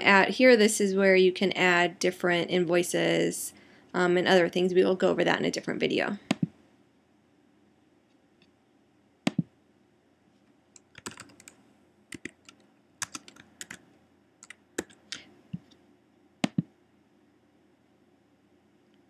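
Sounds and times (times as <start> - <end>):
keyboard typing: 9.3 - 9.5, 10.8 - 13.8, 14.4 - 15.8, 16.4 - 16.7
mouse button clicks: 16.4 - 16.7.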